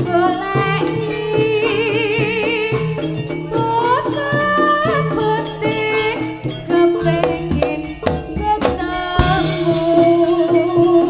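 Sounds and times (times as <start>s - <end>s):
sliding pitch melody: 4.9s - 10.2s
drum strokes: 5.4s - 10.8s
low gong tones: 6.4s - 10.4s.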